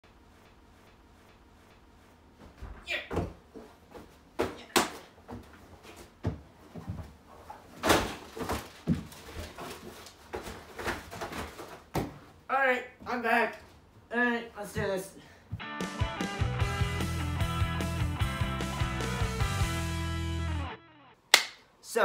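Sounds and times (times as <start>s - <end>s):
thuds and bumps on furniture: 2.4s - 4.7s, 5.3s - 7.2s, 7.8s - 9.6s, 10.3s - 12.3s.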